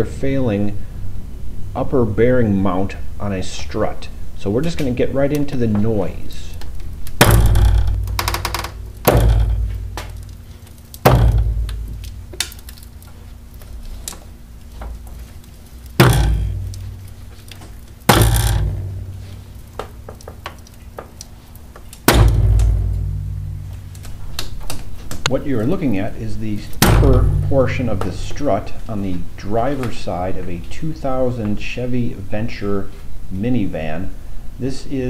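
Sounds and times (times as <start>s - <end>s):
heavy metallic clunks: 7.2s - 10.4s, 11.0s - 12.8s, 16.0s - 20.5s, 22.0s - 25.3s, 26.8s - 28.2s.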